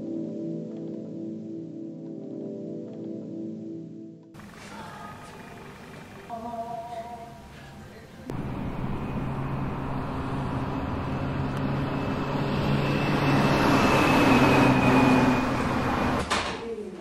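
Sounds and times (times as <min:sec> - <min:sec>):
car engine and road noise: 0:08.3 - 0:16.2.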